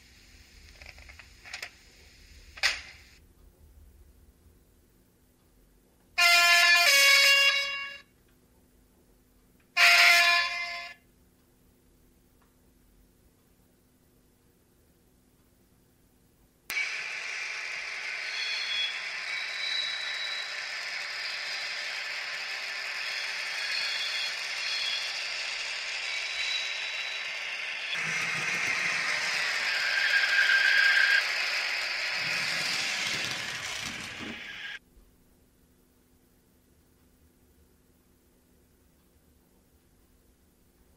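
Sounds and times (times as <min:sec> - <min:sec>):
long model train horn: 0:06.2 - 0:08.1, 0:09.8 - 0:11.0, 0:17.5 - 0:34.8
two-tone model train horn: 0:06.2 - 0:08.1, 0:09.8 - 0:11.0, 0:18.3 - 0:34.8
high wheel squeal: 0:16.8 - 0:34.8.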